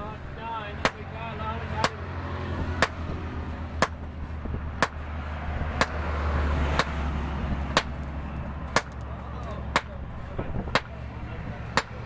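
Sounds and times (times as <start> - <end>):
hammer striking metal on anvil: 0.8 - 1.2, 2.8 - 3.1, 3.8 - 4.1, 4.8 - 5.0, 5.8 - 6.1, 6.8 - 7.0, 8.7 - 9.0, 9.7 - 10.0.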